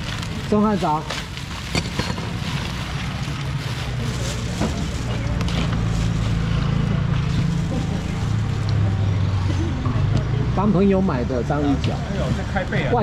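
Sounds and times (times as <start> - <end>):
low engine hum: 0.0 - 13.0.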